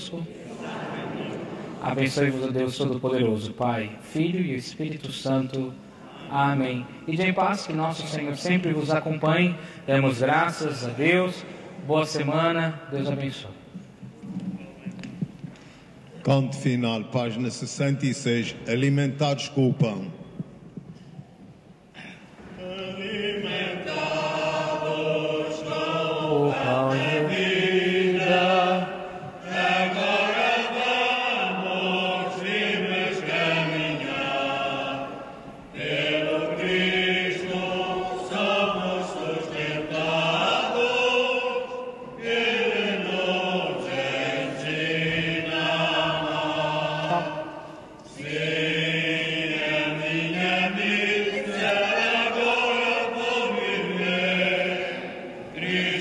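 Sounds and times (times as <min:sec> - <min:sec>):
choir singing a hymn: 0:00.0 - 0:04.7, 0:22.4 - 0:56.0.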